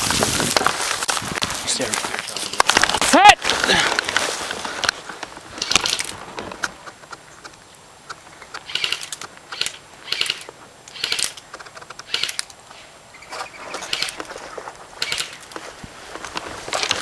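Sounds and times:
footsteps crunching on dry ground: 0.0s - 7.3s, 12.7s - 17.0s.

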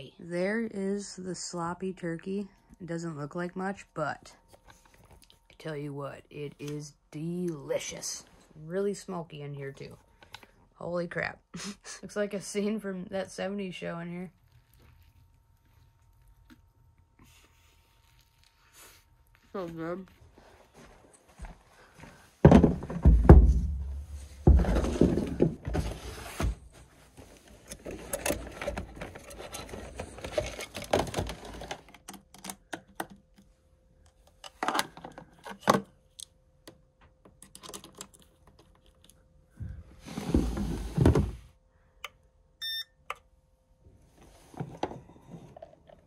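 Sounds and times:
faint steady hum: 0.0s - 46.0s
knocking scraping and rustling: 22.4s - 31.9s, 40.0s - 41.5s
short electronic beep: 42.6s - 43.0s.

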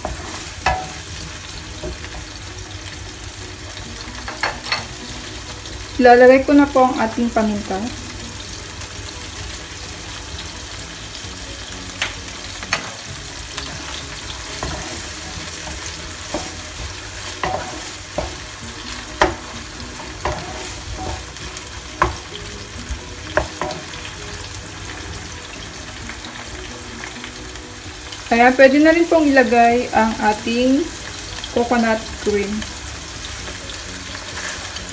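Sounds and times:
meat sizzling in oil: 0.0s - 34.9s
wooden spatula scraping pan: 13.7s - 21.4s.

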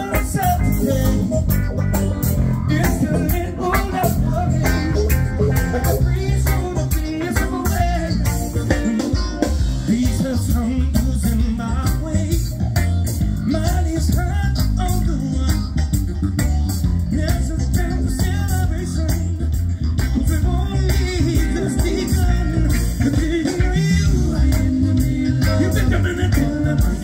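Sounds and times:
person singing: 0.0s - 15.8s, 17.0s - 27.0s
bass guitar: 0.0s - 27.0s
drum kit beat: 0.0s - 27.0s
electric guitar: 0.0s - 27.0s
keyboard: 0.0s - 27.0s.

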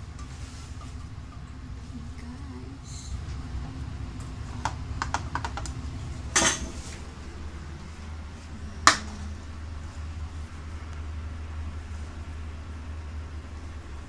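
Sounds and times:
steady low hum: 0.0s - 14.0s
kitchenware clicking and clattering: 6.3s - 6.9s.

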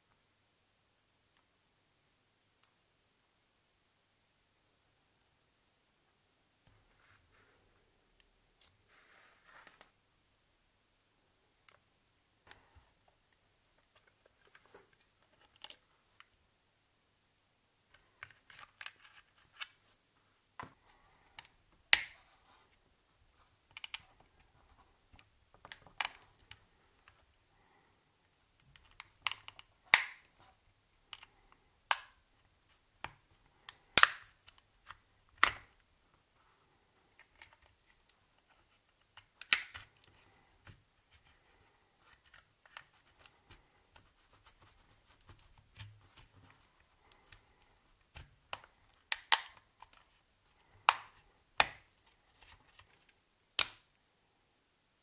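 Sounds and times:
plastic clips snapping: 21.4s - 22.2s, 28.7s - 30.3s, 31.9s - 32.2s, 33.6s - 35.8s, 39.2s - 40.0s, 48.2s - 50.0s, 53.6s - 53.8s.

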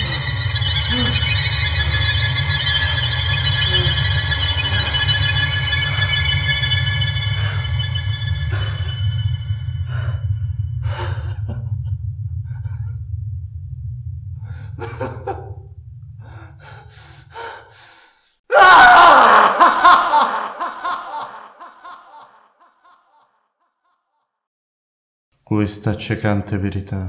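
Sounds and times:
low drone: 0.0s - 17.8s
man laughing manically: 14.8s - 15.6s, 18.5s - 23.2s
man chuckling and gasping: 19.2s - 23.2s.

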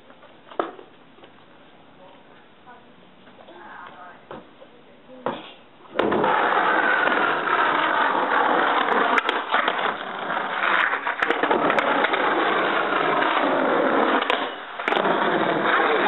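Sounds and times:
skateboard clacks: 5.2s - 16.0s
skateboard wheels rolling on asphalt: 5.9s - 16.0s.

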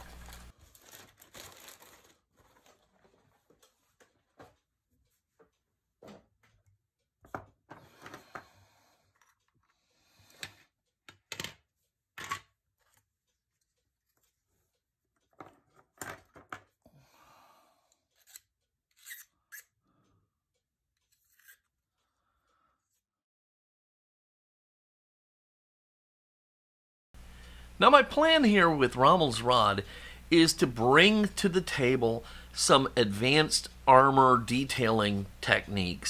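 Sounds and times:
plastic scraping rustles: 0.0s - 4.5s.

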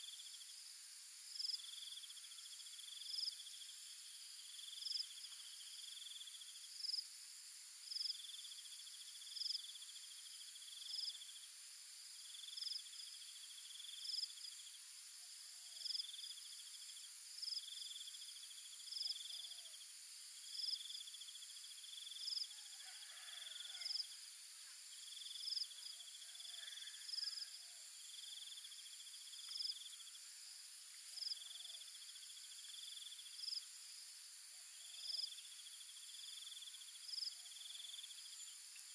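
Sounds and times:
insect pulsed trill: 1.3s - 7.1s, 15.4s - 22.5s, 23.5s - 38.9s
sharp high insect chirp: 25.0s - 38.9s.

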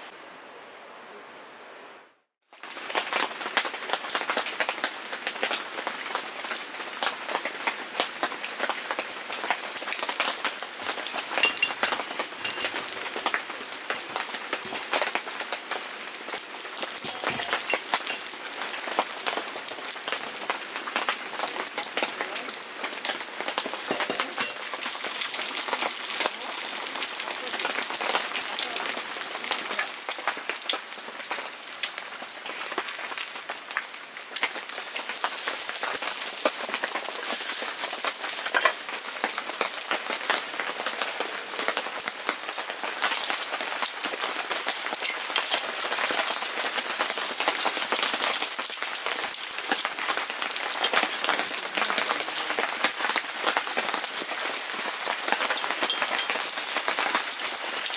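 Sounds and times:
heavy rain pattering: 2.6s - 57.9s
egg sizzling in butter: 10.0s - 13.4s, 34.4s - 39.9s, 43.0s - 57.9s.

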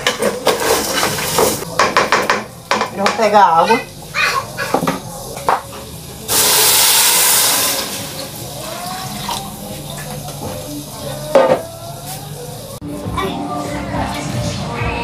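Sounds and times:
water pouring into a pot: 6.3s - 10.2s.

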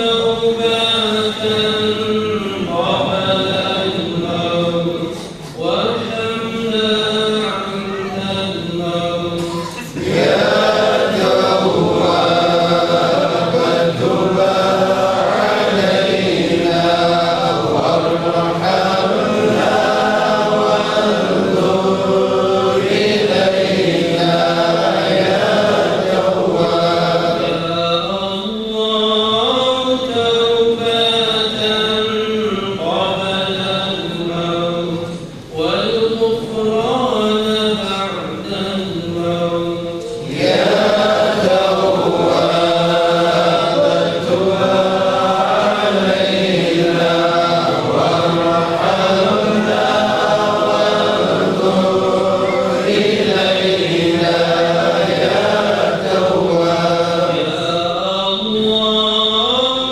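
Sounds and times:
men chanting together: 0.0s - 59.9s.

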